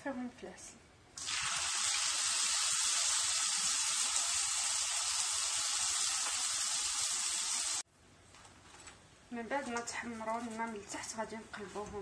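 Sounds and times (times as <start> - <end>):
pastries deep-frying in oil: 1.2 - 7.9.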